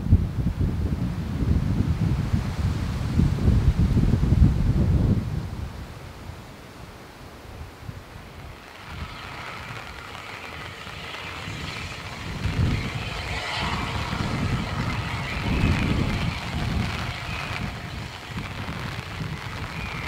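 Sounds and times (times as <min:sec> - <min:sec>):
heavy exhaust beats: 0:08.2 - 0:20.0.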